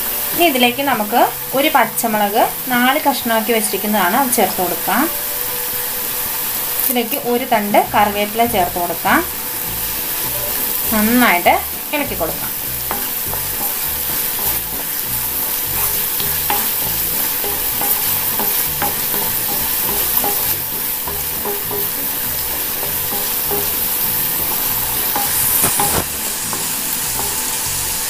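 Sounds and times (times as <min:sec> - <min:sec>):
vegetables sizzling in hot oil: 0:00.0 - 0:28.0
spatula scraping and knocking pan: 0:07.8 - 0:28.0.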